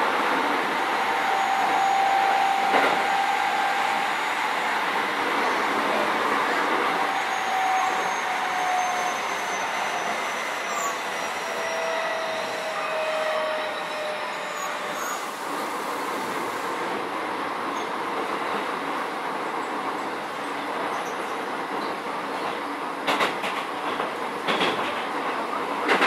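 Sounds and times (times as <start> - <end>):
train wheels rolling on rails: 0.0 - 26.0.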